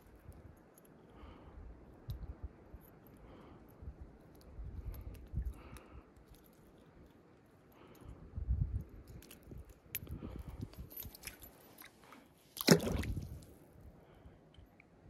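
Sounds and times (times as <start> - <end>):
fish splashing into water: 12.6 - 13.5.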